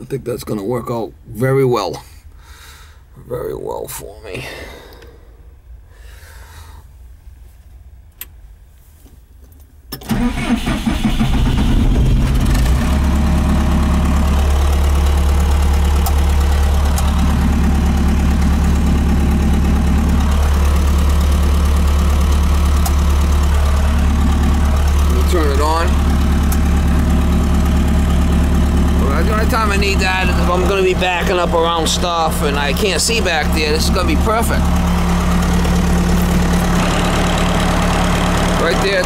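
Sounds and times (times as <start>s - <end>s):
engine starting and idling: 10.0s - 39.0s.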